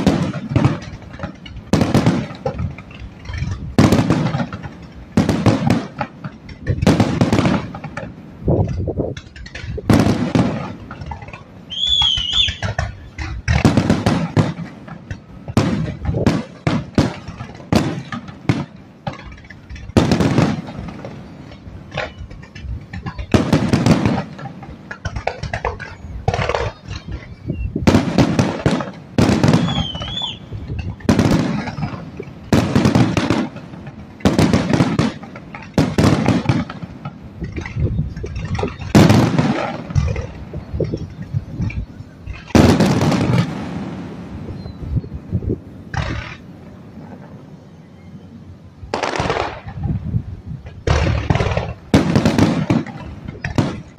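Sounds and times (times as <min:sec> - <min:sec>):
fireworks bangs: 0:00.0 - 0:53.9
fireworks crackling: 0:00.0 - 0:53.9
warbling firework whistle: 0:11.6 - 0:13.2, 0:29.2 - 0:30.7.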